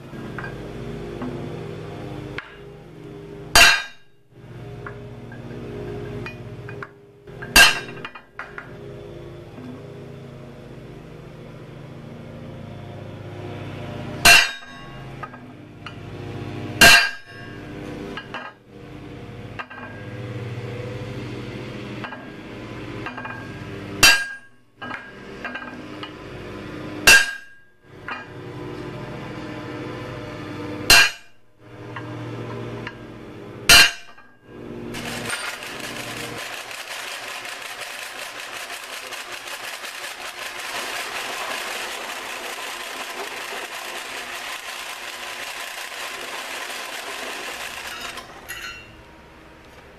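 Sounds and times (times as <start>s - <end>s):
drill press running: 0.0s - 49.9s
hammer striking punch on steel: 3.6s - 4.0s, 14.3s - 14.8s, 27.1s - 27.6s, 33.7s - 34.2s.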